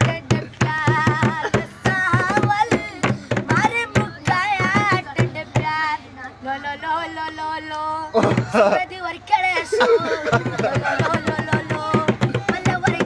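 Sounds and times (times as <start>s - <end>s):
hand drumming on plastic jerrycan: 0.0s - 5.8s, 8.2s - 8.6s, 10.3s - 13.0s
boy singing with vibrato: 0.0s - 13.0s.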